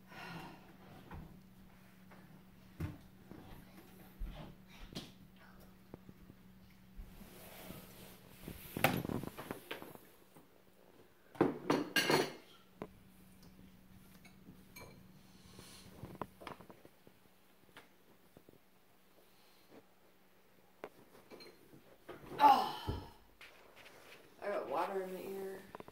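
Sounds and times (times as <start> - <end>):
dishes and cutlery clattering: 11.4 - 12.6, 14.1 - 15.0, 21.2 - 21.7.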